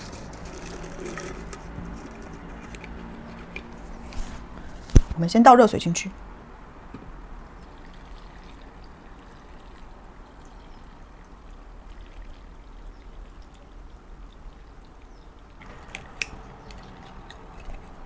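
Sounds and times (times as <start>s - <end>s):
hot water trickling into jar: 0.0s - 3.9s, 7.4s - 18.0s.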